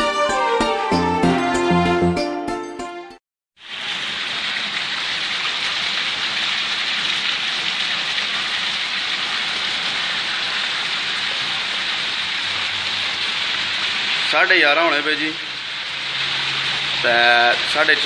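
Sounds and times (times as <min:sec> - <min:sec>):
heavy rain on rooftops: 0:03.6 - 0:18.0.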